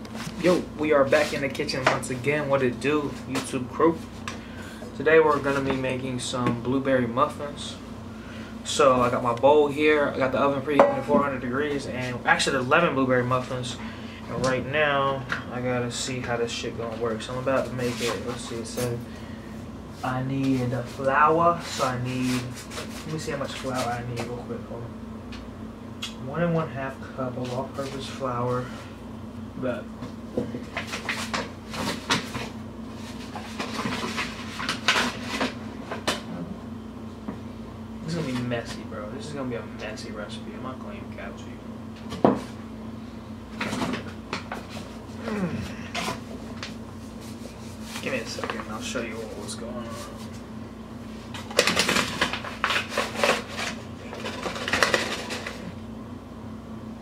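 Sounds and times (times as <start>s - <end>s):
steady low hum: 0.0s - 57.0s
paper bag crinkling: 51.3s - 55.6s.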